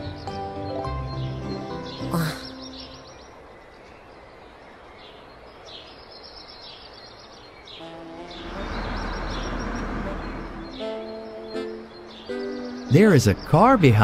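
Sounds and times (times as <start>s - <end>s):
birds chirping: 0.0s - 14.0s
car approaching on road: 7.8s - 12.9s.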